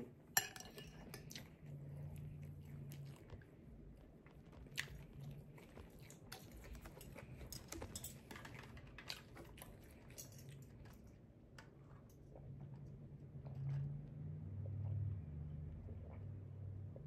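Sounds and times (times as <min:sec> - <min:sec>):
chewing with mouth clicks: 0:00.7 - 0:13.7.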